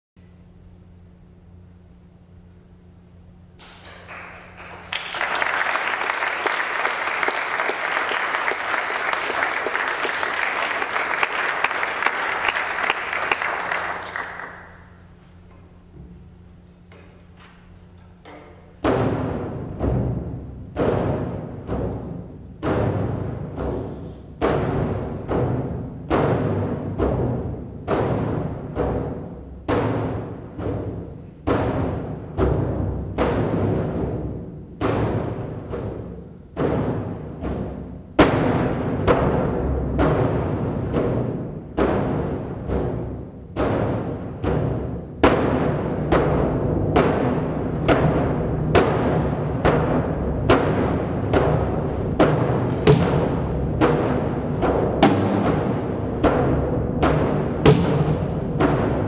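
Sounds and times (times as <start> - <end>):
audience applauding: 3.7 - 14.9
concert bass drum booming: 24.4 - 59.0.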